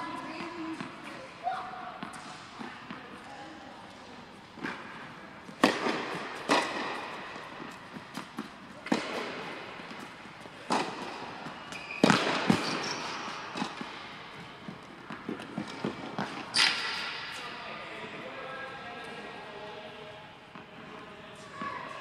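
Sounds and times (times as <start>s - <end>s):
tennis ball bounces: 5.4s - 16.8s
tennis racket strikes: 5.5s - 10.1s.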